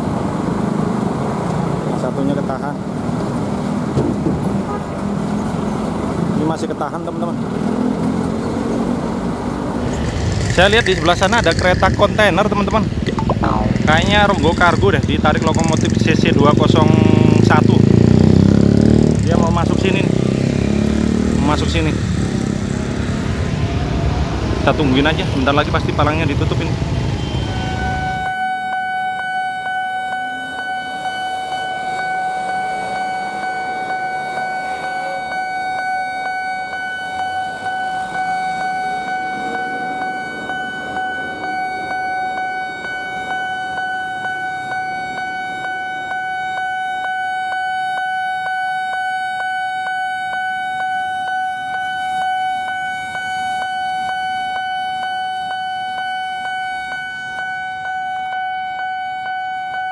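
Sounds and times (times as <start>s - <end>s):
street traffic: 0.0s - 59.9s
level crossing alarm pulsing: 10.0s - 18.0s, 26.7s - 59.9s.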